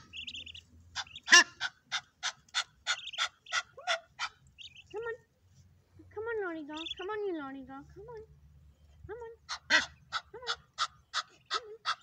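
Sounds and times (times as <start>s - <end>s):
goose honking: 0.0s - 4.9s, 9.5s - 12.0s
goslings peeping: 0.0s - 5.1s, 6.6s - 7.3s, 9.4s - 12.0s.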